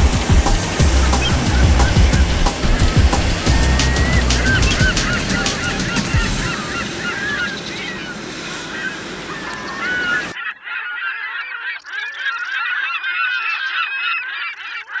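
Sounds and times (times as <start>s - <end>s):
surf and wind noise: 0.0s - 10.4s
flock of birds calling: 0.0s - 15.0s.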